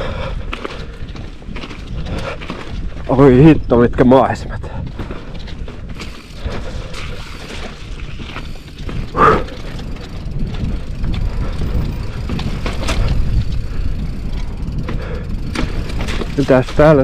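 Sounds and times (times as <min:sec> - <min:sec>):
bike clicks and rattles: 0:00.0 - 0:17.0
bike tyres rumbling on rock: 0:00.0 - 0:17.0
wind on microphone: 0:04.5 - 0:16.4.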